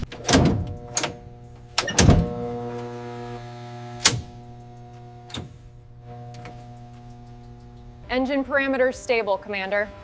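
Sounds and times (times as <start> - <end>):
heavy mechanical clunk: 0.0 - 2.9
machinery hum: 0.0 - 10.0.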